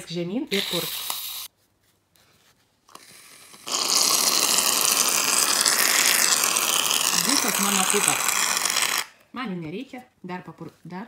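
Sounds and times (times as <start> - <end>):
aerosol foam can spraying: 0.5 - 1.5, 2.9 - 9.1.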